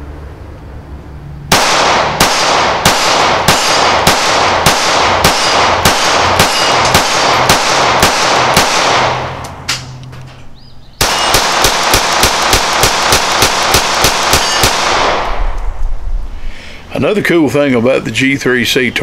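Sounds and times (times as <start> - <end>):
pistol shots echoing: 1.5 - 9.8, 11.0 - 15.6.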